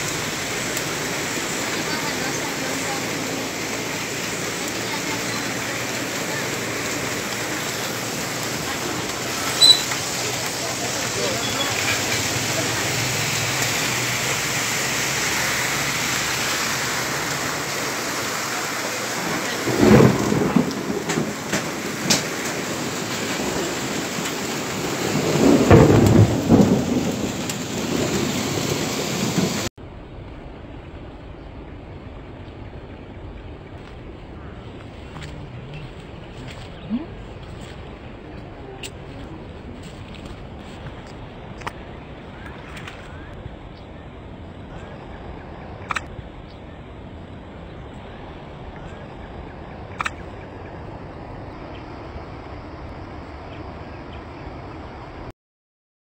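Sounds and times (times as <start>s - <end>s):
heavy rain hissing: 0.0s - 29.7s, 30.5s - 55.3s
outdoor background: 0.0s - 55.3s
thunder rumble: 0.0s - 55.3s
faint bird chirps: 9.6s - 9.9s.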